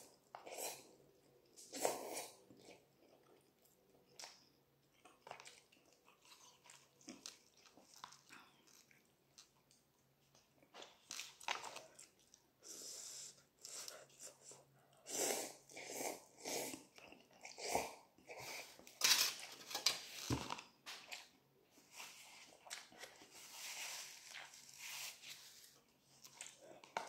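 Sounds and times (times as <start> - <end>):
person slurping noodles: 15.0 - 18.8.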